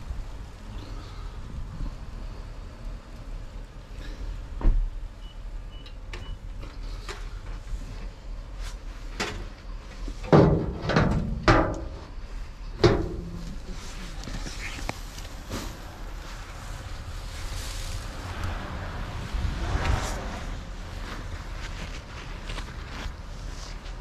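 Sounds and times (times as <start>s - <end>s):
low rumble: 10.6s - 24.0s
cardboard and plastic rustling: 13.0s - 18.1s, 19.9s - 24.0s
loud scraping: 17.3s - 22.0s.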